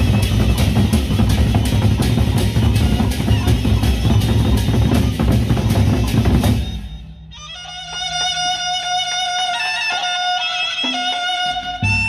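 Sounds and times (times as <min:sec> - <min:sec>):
drum ensemble beating fast: 0:00.0 - 0:08.7.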